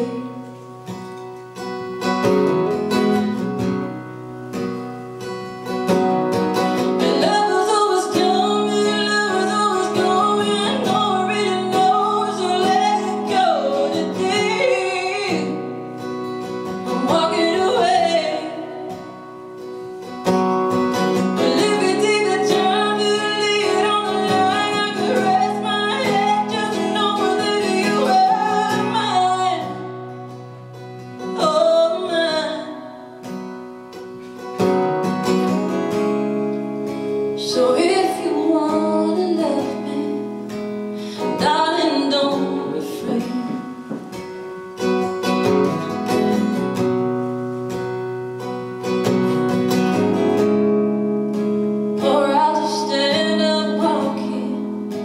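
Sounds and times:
woman singing: 0.0 - 2.0, 5.6 - 20.2, 20.9 - 33.5, 37.3 - 44.6, 51.3 - 55.0
strummed acoustic guitar: 0.0 - 55.0.

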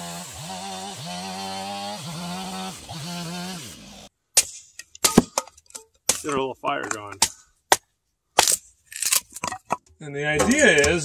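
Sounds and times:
chainsaw cutting wood: 0.0 - 4.7
hatchet striking kindling: 4.4 - 9.2.

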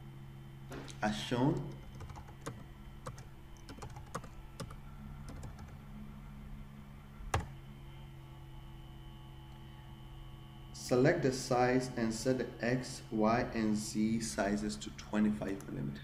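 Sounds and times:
steady low hum: 0.0 - 16.0
computer keyboard keystrokes: 1.5 - 5.8, 7.3 - 7.6.

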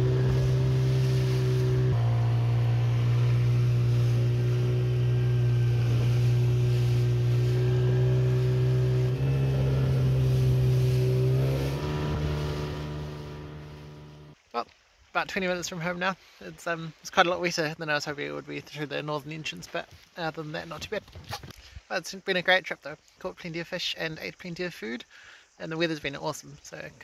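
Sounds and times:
outboard motor droning: 0.0 - 14.4
rushing water: 0.0 - 23.2.

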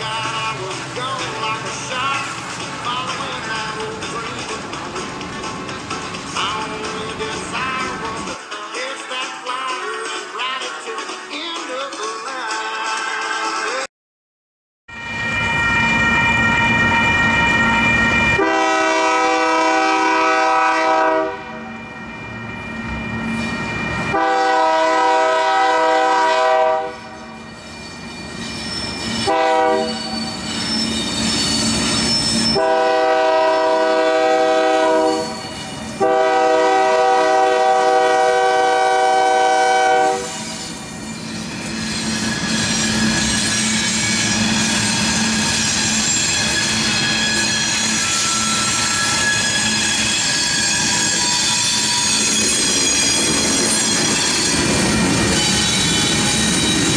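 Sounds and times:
train wheels clattering on rails: 0.0 - 8.4, 40.6 - 56.9
crossing bell ringing: 14.9 - 19.1, 21.5 - 24.6, 27.2 - 32.7, 40.4 - 56.9
locomotive air horn blasts: 18.4 - 21.8, 24.1 - 27.4, 29.2 - 30.2, 32.5 - 35.4, 36.0 - 40.6.

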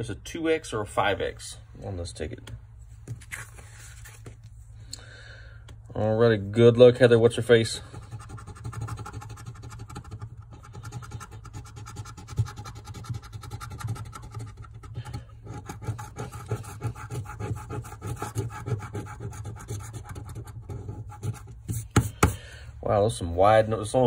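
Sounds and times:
coin scraping a scratch card: 7.9 - 22.2.

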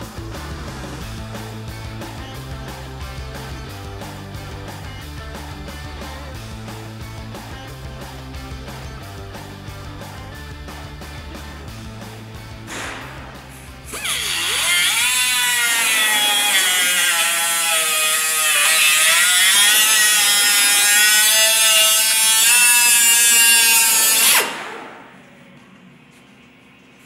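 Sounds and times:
cut-off tool high whine: 12.7 - 25.2.

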